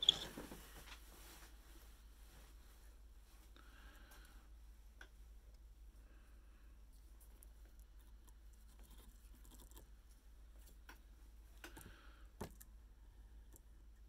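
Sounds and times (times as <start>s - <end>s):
faint small clicks and taps: 10.5s - 12.7s.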